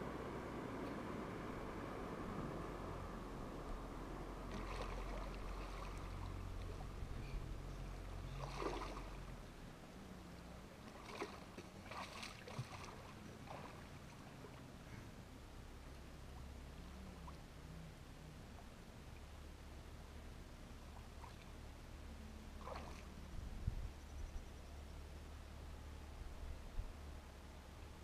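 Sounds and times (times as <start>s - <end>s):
low rumble: 0.0s - 10.8s
water splashing: 4.2s - 7.3s, 8.0s - 9.4s, 10.1s - 14.8s, 22.6s - 23.3s.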